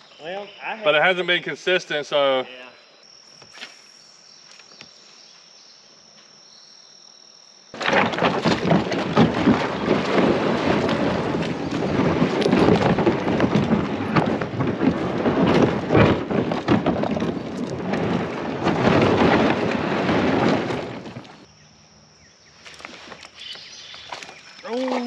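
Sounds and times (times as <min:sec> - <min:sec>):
kayak hull grinding over gravel: 0:07.7 - 0:21.5, 0:22.6 - 0:25.0.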